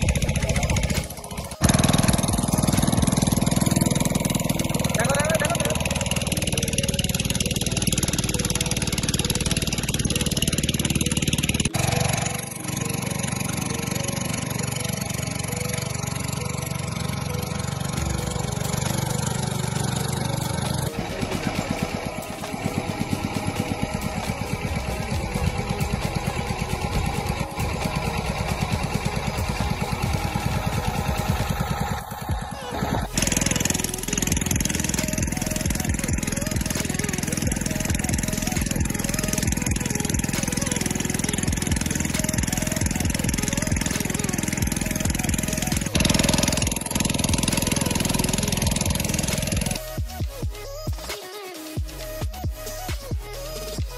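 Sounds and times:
motorboat engine droning: 0.0s - 50.8s.

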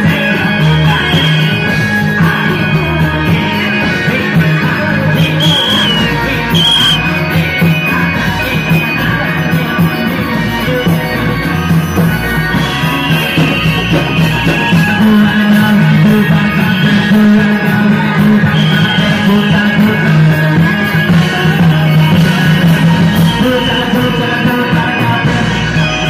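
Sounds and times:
person singing: 0.0s - 26.0s
traditional music over loudspeakers: 0.0s - 26.0s.

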